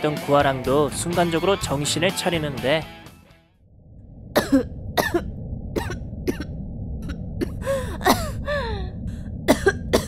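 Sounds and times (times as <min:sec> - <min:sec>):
low background rumble: 0:03.6 - 0:10.0
woman coughing: 0:04.4 - 0:05.2, 0:08.0 - 0:08.4, 0:09.5 - 0:10.0.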